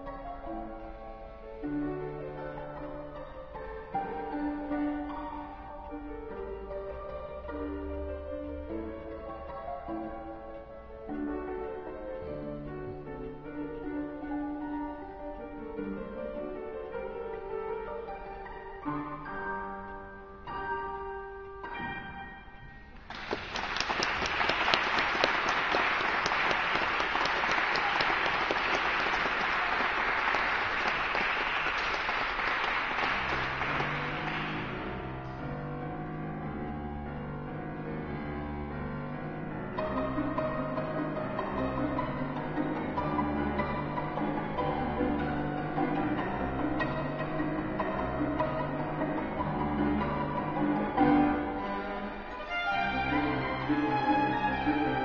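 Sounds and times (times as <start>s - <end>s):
audience applause: 23.1s - 35.0s
violin playing held notes: 51.1s - 55.0s.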